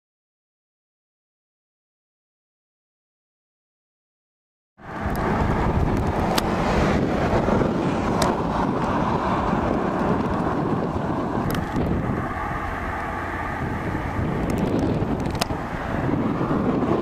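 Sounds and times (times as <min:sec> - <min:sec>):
wind buffeting microphone: 0:04.8 - 0:17.0.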